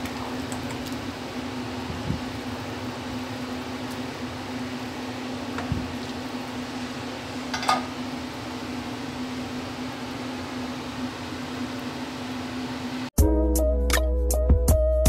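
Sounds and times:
steady mechanical hum: 0:00.0 - 0:13.2
ladle clinking on metal pot: 0:07.5 - 0:07.9.

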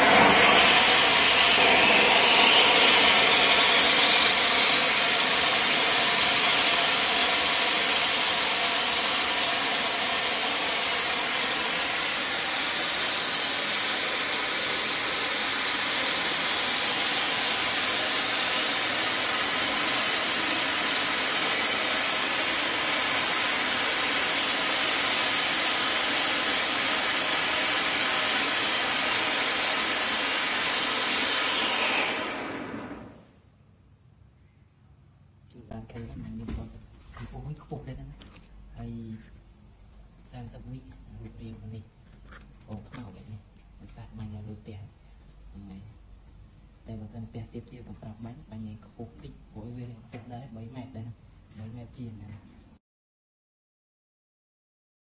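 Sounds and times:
firework hissing sparks: 0:00.0 - 0:33.4.

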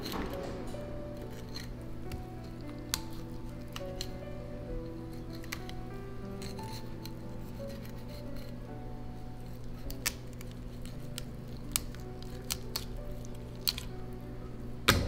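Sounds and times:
knife clicking on bones: 0:01.2 - 0:04.2, 0:04.8 - 0:08.5, 0:09.7 - 0:14.0.

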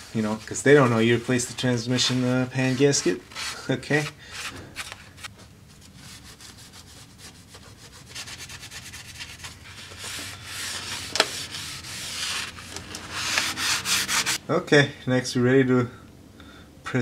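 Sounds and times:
rag scrubbing metal surface: 0:00.0 - 0:04.6, 0:06.0 - 0:14.4.

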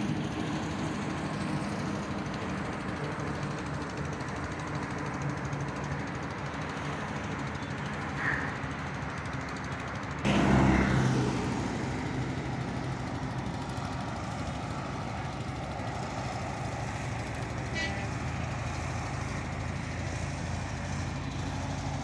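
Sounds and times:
motor engine humming: 0:00.1 - 0:22.0.

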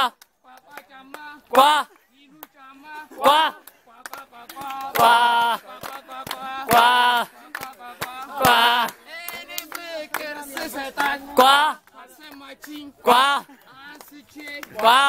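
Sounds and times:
handclaps: 0:00.0 - 0:15.0
men chanting a song: 0:00.0 - 0:15.0
men shouting phrases: 0:00.7 - 0:03.7, 0:08.2 - 0:09.5, 0:10.3 - 0:15.0.

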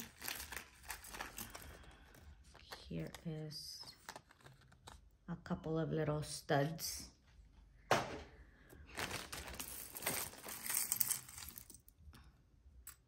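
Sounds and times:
metal jewelry clinking: 0:00.0 - 0:02.2, 0:09.2 - 0:12.0
plastic bag crinkling: 0:00.0 - 0:03.0, 0:08.8 - 0:11.8.

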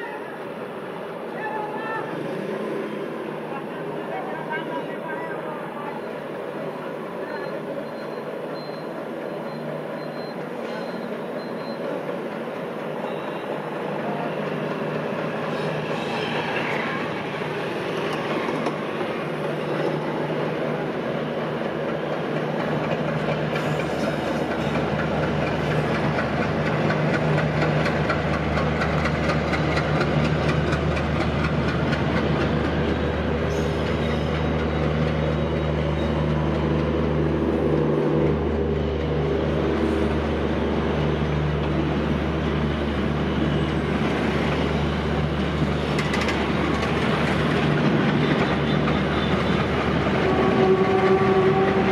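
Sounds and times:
diesel locomotive engine drone: 0:00.0 - 0:51.9
train coaches clattering on rails: 0:01.3 - 0:51.9
falling squeal: 0:07.2 - 0:11.8.

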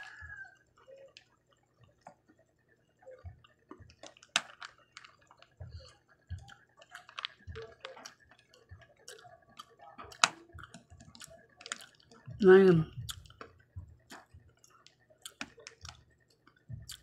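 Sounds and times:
soft chewing: 0:00.0 - 0:17.0
chopsticks clicking on candy: 0:06.4 - 0:08.4, 0:09.1 - 0:12.1, 0:14.1 - 0:17.0.

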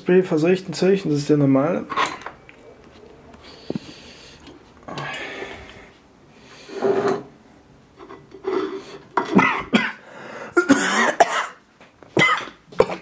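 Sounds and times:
man clearing throat: 0:09.4 - 0:10.0, 0:10.6 - 0:11.6
man coughing: 0:09.4 - 0:10.0, 0:10.6 - 0:11.6, 0:12.2 - 0:13.0.

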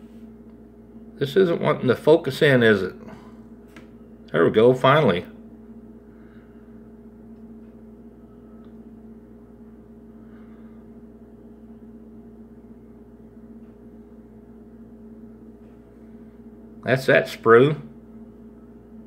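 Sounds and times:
electrical hum: 0:00.0 - 0:19.0.

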